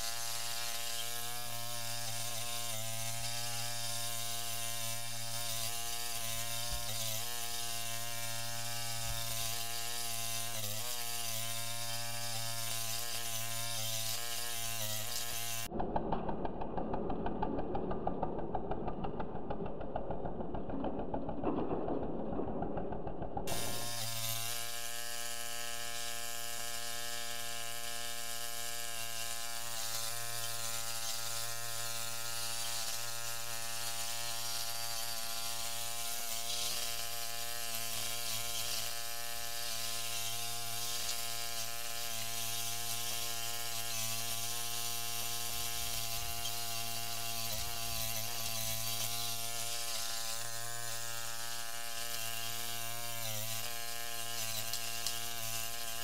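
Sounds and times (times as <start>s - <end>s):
tractor engine running steadily: 15.8s - 23.8s.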